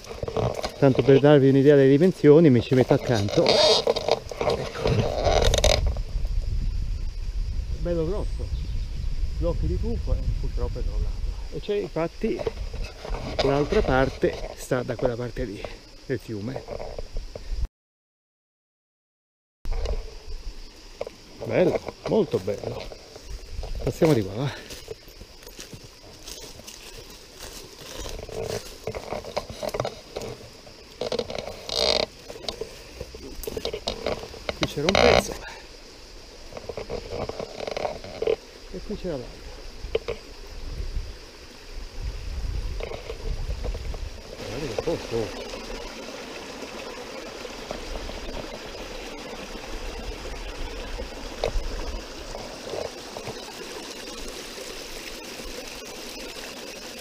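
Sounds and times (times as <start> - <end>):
stream water splashing: 19.8 - 57.0
footsteps crunching dry leaves: 23.2 - 29.7.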